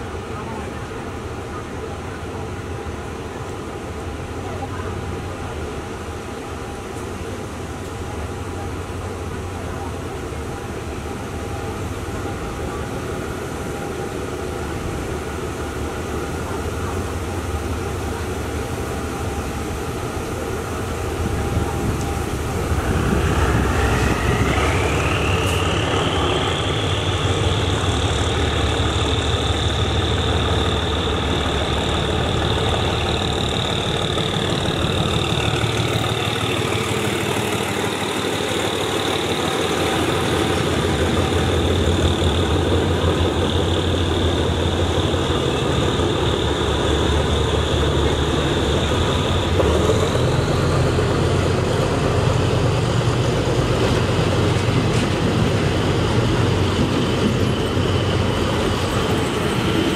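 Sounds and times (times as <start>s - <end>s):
diesel locomotive engine passing: 0.0s - 59.9s
high whine rising in pitch: 21.9s - 36.4s.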